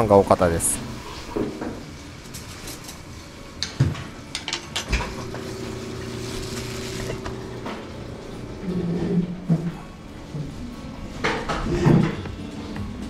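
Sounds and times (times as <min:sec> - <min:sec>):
mechanical hum with faint hiss: 0:00.0 - 0:13.0
dishes and utensils clinking: 0:03.6 - 0:07.9.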